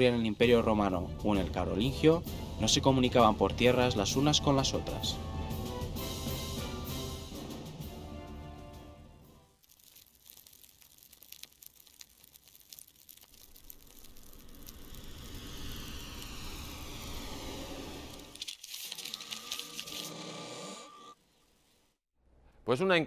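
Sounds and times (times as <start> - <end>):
dense crackling and crinkling: 9.6 - 16.8, 18.1 - 20.2
low rumble: 13.6 - 18.4
whooshing rush: 14.3 - 18.4.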